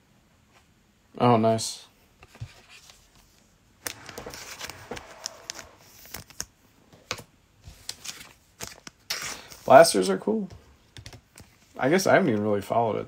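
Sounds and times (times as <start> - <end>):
trading cards rustling and clicking: 2.2 - 9.8.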